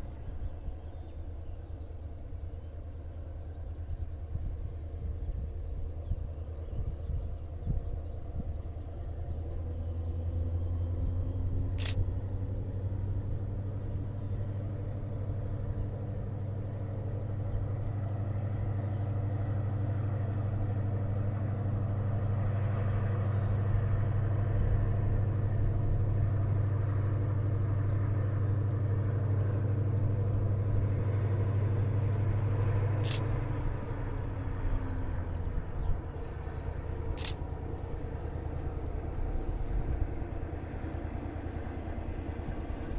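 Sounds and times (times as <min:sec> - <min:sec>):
distant diesel locomotive hum: 0:00.0 - 0:42.9
sharp clicks: 0:33.0 - 0:33.4, 0:37.0 - 0:37.5.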